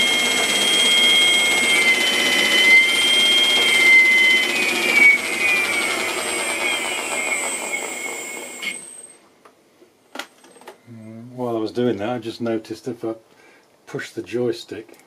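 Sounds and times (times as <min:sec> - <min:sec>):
electric motor whine winding down: 0:00.0 - 0:09.2.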